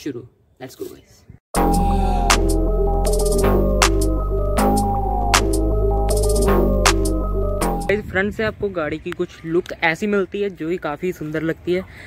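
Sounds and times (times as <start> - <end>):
electronic music with heavy bass: 1.6 - 7.9.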